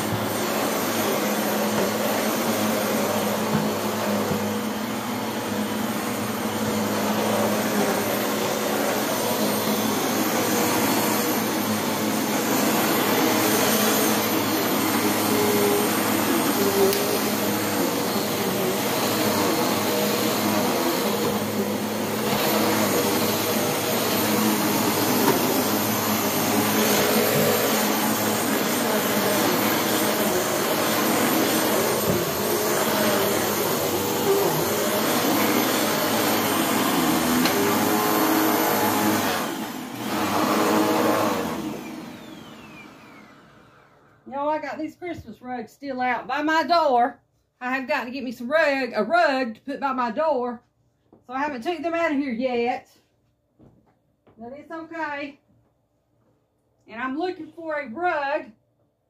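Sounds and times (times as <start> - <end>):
vacuum cleaner running: 0.0 - 45.2.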